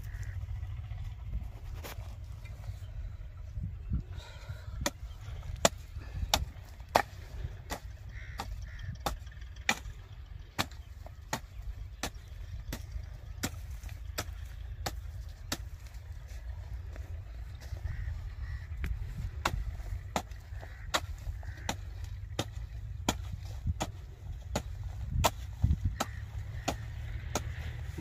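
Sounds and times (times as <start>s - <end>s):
low rumble: 0.0s - 28.0s
hand hoe chopping into soil: 4.8s - 16.4s, 18.8s - 28.0s.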